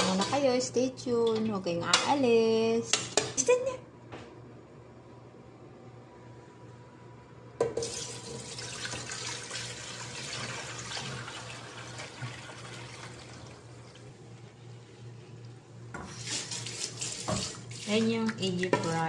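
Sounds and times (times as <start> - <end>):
liquid pouring and splashing: 7.8 - 13.7, 16.2 - 18.2.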